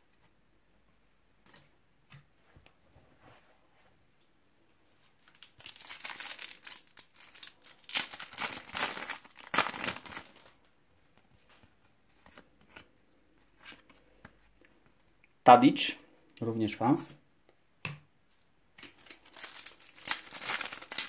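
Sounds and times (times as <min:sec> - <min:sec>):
foil wrapper crinkling: 0:05.2 - 0:10.6, 0:18.9 - 0:21.0.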